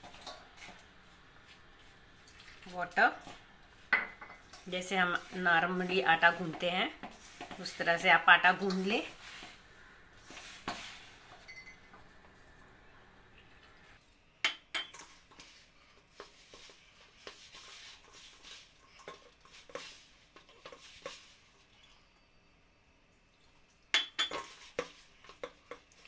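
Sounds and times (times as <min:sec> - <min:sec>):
clinks and knocks on steel bowl: 0:23.9 - 0:25.8.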